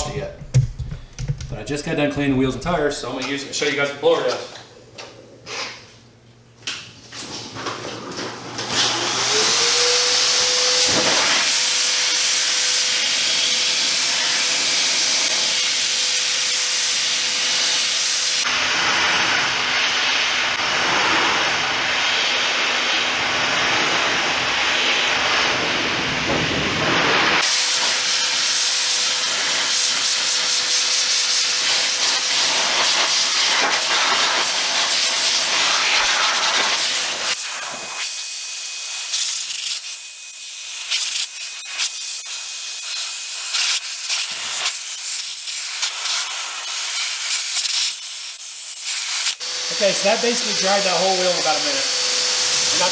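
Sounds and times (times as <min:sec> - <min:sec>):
car dryer blowing air: 0:07.2 - 0:44.8, 0:48.9 - 0:52.9.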